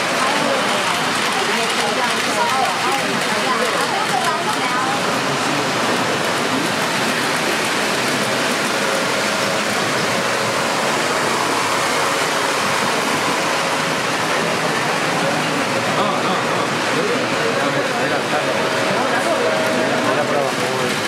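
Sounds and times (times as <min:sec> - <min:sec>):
steady rushing hiss: 0:05.0 - 0:17.3.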